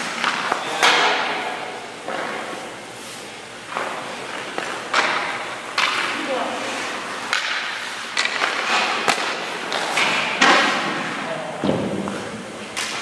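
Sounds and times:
hockey sticks knocking puck: 0:00.0 - 0:02.7, 0:03.7 - 0:13.0
skate blades scraping ice: 0:02.0 - 0:11.2.

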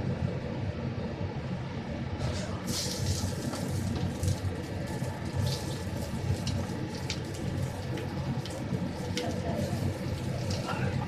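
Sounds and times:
low kitchen rumble: 0:00.0 - 0:11.0.

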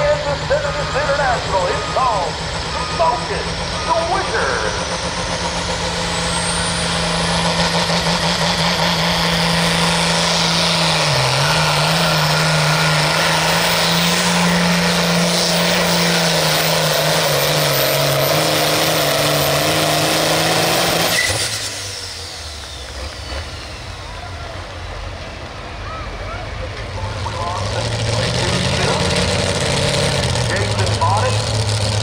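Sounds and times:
tractor engine running under load: 0:00.0 - 0:21.0.

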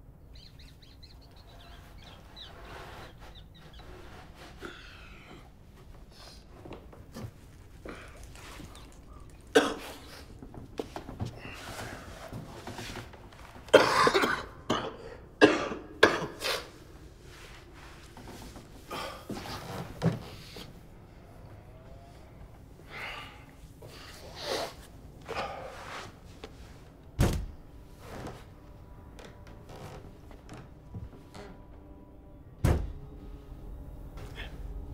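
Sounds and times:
man coughing and gasping: 0:13.7 - 0:16.5.

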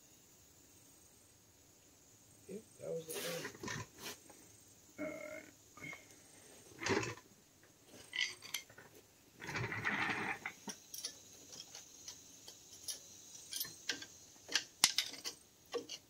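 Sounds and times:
hand tools clicking on metal: 0:09.5 - 0:16.0.

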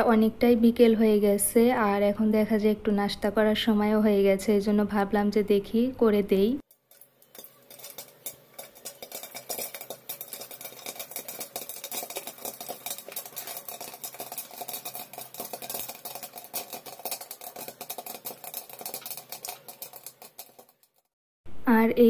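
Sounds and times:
popcorn popping: 0:06.7 - 0:21.2.

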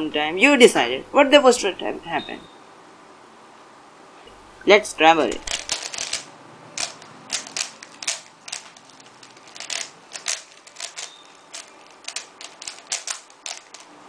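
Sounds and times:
plastic puzzle cube clicking: 0:05.3 - 0:13.9.

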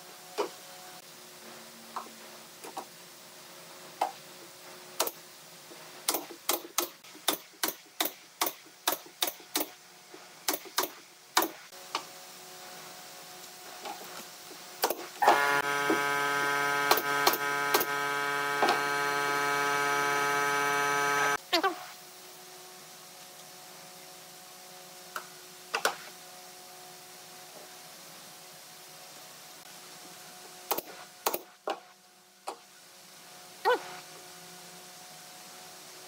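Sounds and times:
electric motor running: 0:15.2 - 0:21.4.

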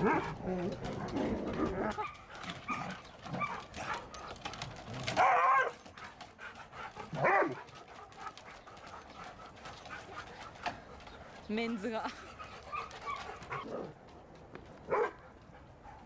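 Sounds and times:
dog barking: 0:07.2 - 0:07.7, 0:14.9 - 0:15.2.

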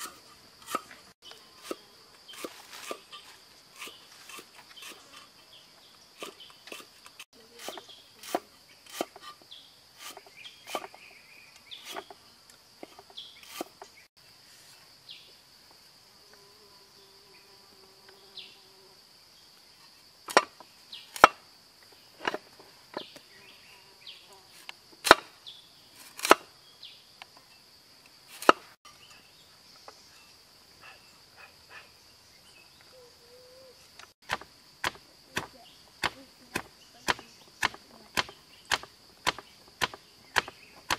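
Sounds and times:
knife chopping on wooden board: 0:10.0 - 0:11.0, 0:34.2 - 0:40.9
pestle pounding in stone mortar: 0:34.2 - 0:40.9.

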